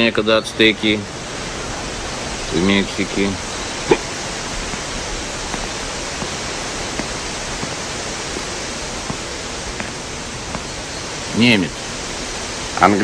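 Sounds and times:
steady hiss: 0:00.0 - 0:13.0
slow footsteps on paved path: 0:03.9 - 0:11.1.

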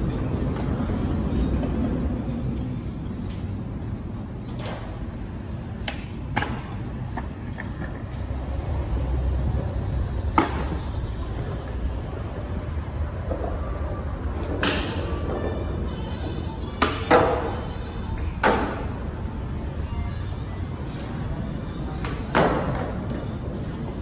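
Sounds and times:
skateboard clacking on ground: 0:00.0 - 0:03.5, 0:05.7 - 0:08.4, 0:10.0 - 0:19.1, 0:20.9 - 0:24.0
skateboard wheels rolling on concrete: 0:00.0 - 0:24.0.

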